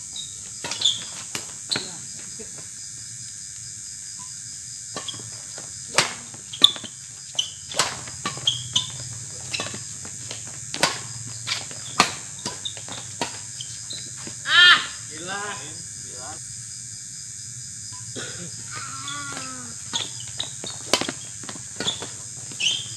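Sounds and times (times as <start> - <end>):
crickets chirring: 0.0 - 22.9
rackets hitting shuttlecock: 0.6 - 2.0, 4.9 - 15.0, 19.3 - 22.9.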